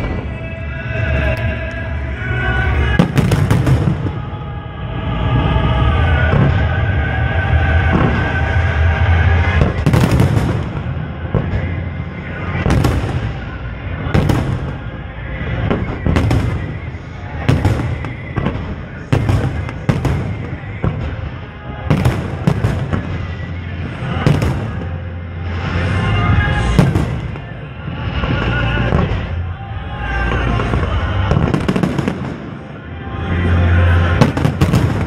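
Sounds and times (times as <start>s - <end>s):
music playing: 0.0s - 35.0s
fireworks bursting: 2.6s - 4.5s, 5.3s - 35.0s.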